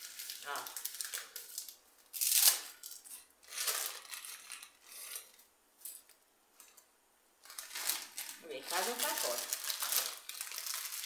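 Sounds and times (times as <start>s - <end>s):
plastic packet crinkling: 0.0s - 5.3s, 7.4s - 11.0s
dry spaghetti rustling: 7.4s - 11.0s.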